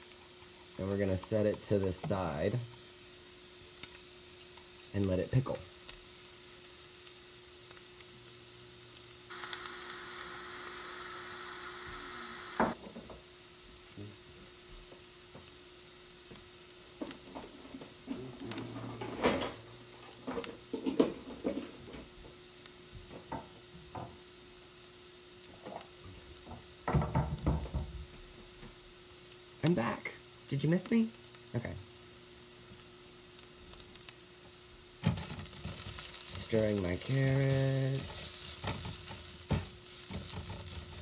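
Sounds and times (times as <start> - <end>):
carrots sizzling in a frying pan: 0.0 - 41.0
loud hiss: 9.3 - 12.8, 36.2 - 41.0.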